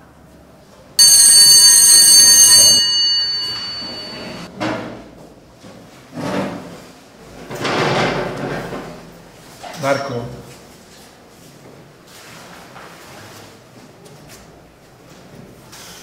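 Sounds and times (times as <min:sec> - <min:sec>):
school bell ringing: 0:01.0 - 0:04.5.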